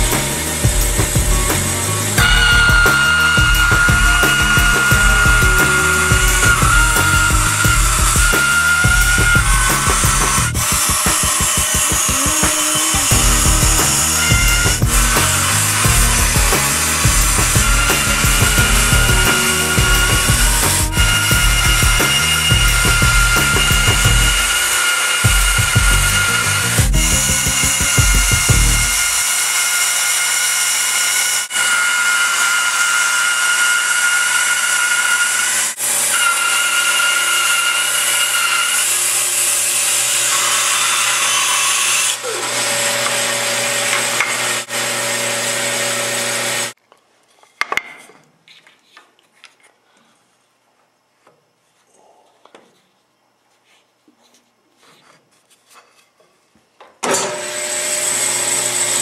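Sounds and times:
bandsaw whirring hiss: 0:00.0 - 0:29.5.

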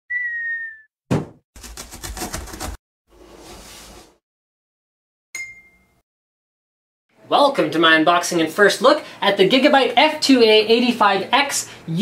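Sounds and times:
thump: 0:01.1 - 0:01.4.

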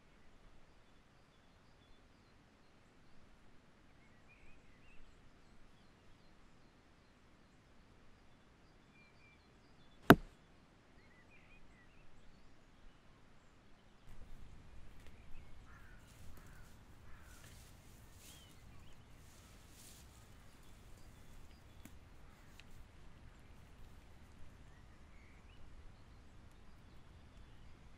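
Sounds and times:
sharp crack: 0:10.1 - 0:10.3.

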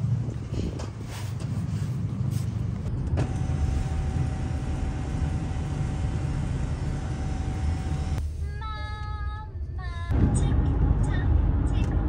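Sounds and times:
car cabin road rumble: 0:10.0 - 0:12.0.

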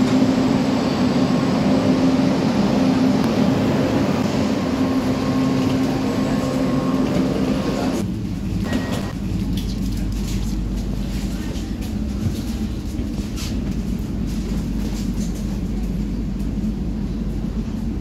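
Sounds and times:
electric train humming: 0:00.0 - 0:18.0
low rumble inside carriage: 0:00.0 - 0:18.0.

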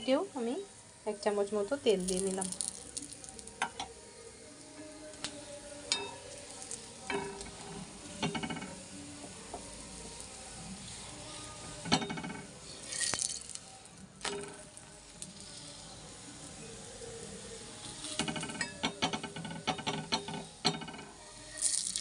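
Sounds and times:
flatbread sizzling in oil: 0:00.0 - 0:22.0
metal spatula scraping griddle: 0:05.9 - 0:08.8, 0:10.1 - 0:16.0, 0:17.6 - 0:22.0.

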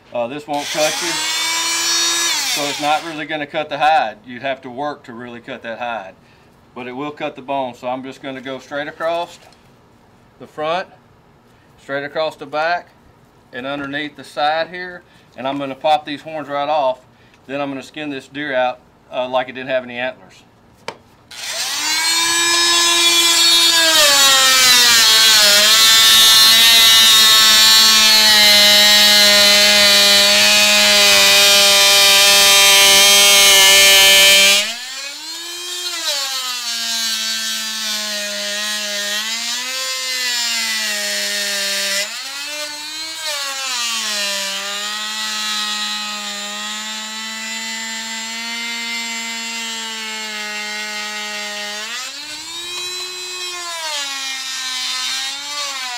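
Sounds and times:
oscillating saw cutting bone: 0:00.6 - 0:03.2, 0:21.3 - 0:55.9.

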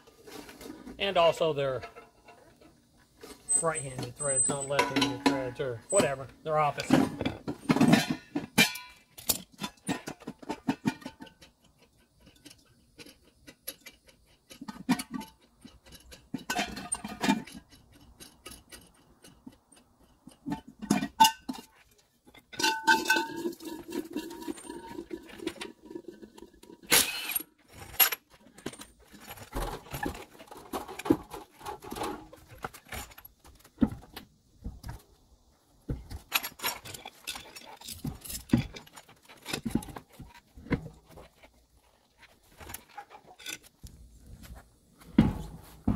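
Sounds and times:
metal hub cover clanking: 0:03.5 - 0:11.6, 0:14.5 - 0:19.5, 0:20.2 - 0:33.2.

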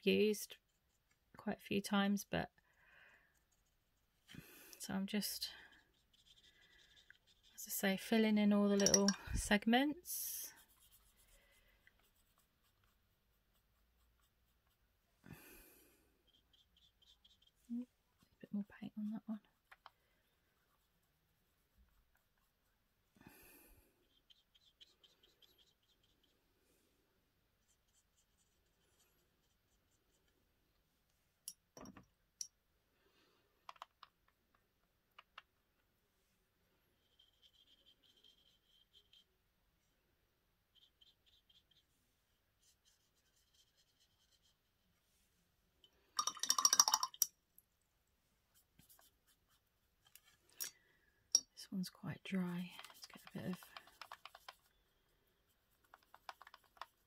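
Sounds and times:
paintbrush scratching: 0:03.3 - 0:04.3, 0:05.6 - 0:07.7, 0:10.2 - 0:15.0, 0:16.2 - 0:18.4, 0:19.5 - 0:23.0, 0:24.0 - 0:26.4, 0:27.6 - 0:30.4, 0:36.9 - 0:39.4, 0:40.7 - 0:45.1, 0:48.5 - 0:50.4, 0:52.2 - 0:57.0.

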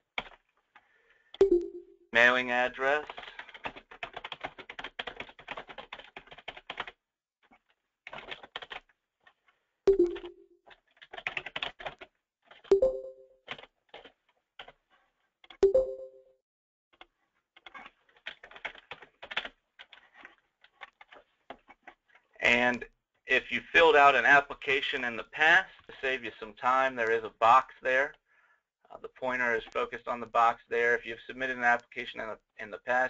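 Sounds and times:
computer keyboard typing: 0:00.2 - 0:00.4, 0:03.0 - 0:07.0, 0:08.1 - 0:08.9, 0:09.9 - 0:14.8, 0:17.0 - 0:22.0.

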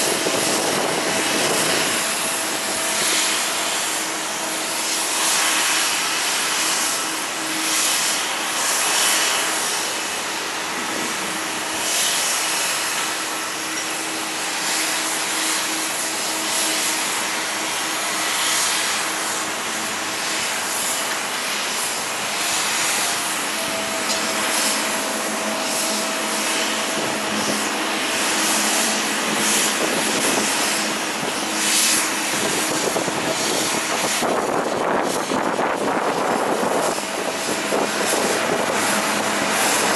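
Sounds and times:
jet engines rushing: 0:00.0 - 0:39.9.

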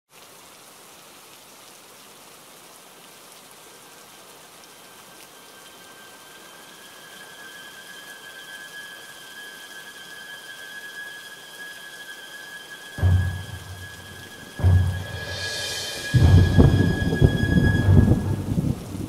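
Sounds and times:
rain hissing on river: 0:00.1 - 0:19.0
thin high whistling tone: 0:04.7 - 0:18.9.

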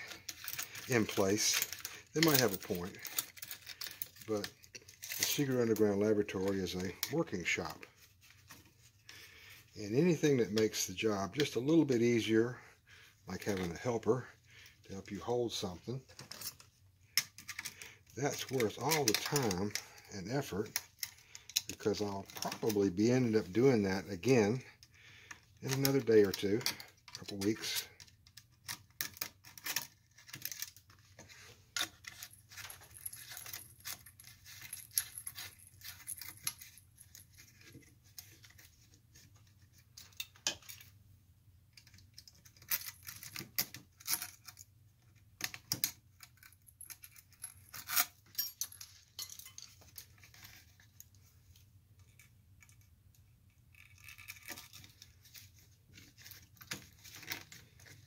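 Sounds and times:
metal parts clicking and clinking: 0:00.0 - 0:08.7, 0:15.2 - 0:23.5, 0:24.2 - 0:39.3, 0:40.0 - 0:41.0, 0:41.7 - 0:51.2, 0:52.0 - 0:58.0.

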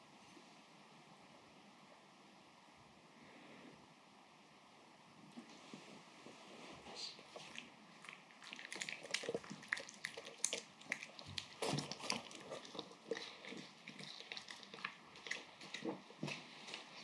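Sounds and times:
dog chewing wet food: 0:07.4 - 0:17.0.

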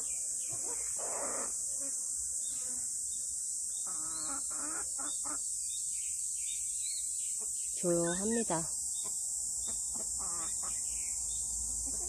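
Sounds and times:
chickens clucking: 0:03.8 - 0:05.4, 0:09.0 - 0:10.9, 0:11.7 - 0:12.0.

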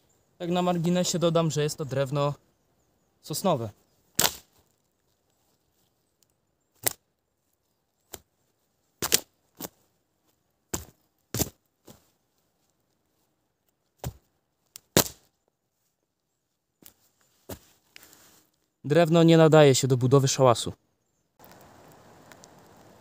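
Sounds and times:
boot kicking rotten wooden pole: 0:04.2 - 0:04.6, 0:09.0 - 0:09.8, 0:10.7 - 0:12.0, 0:14.0 - 0:14.3, 0:14.9 - 0:15.3
wood cracking and breaking: 0:04.2 - 0:04.6.

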